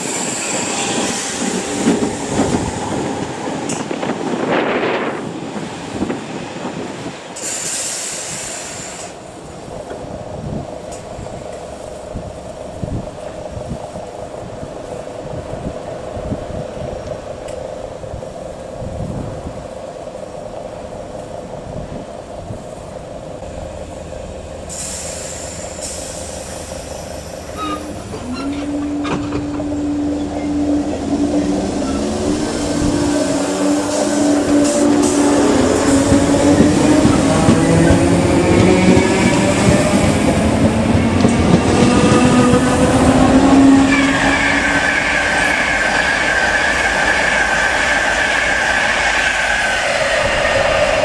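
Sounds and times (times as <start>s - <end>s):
train hum: 0.0s - 51.0s
short bursts of hiss: 7.4s - 9.2s, 24.7s - 27.0s
train wheels clicking over rail joints: 24.7s - 29.9s.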